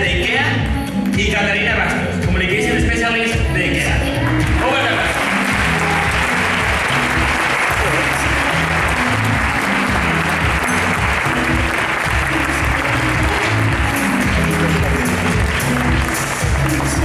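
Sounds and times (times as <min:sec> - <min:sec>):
music with bass line: 0:00.0 - 0:17.0
audience applauding: 0:04.2 - 0:17.0.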